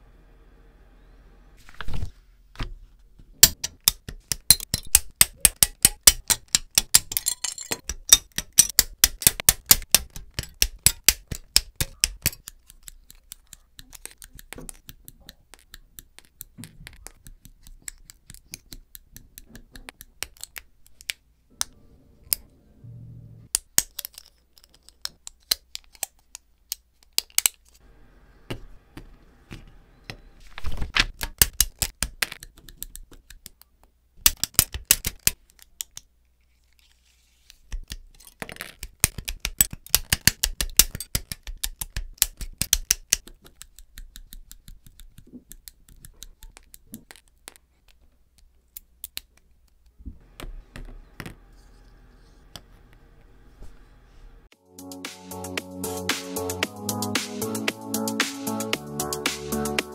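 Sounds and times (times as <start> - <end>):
plastic parts clicking together: 3.4 - 22.4, 23.5 - 27.8, 34.2 - 36.1, 37.7 - 49.9
nippers snipping plastic: 7.8 - 22.4, 31.0 - 36.1.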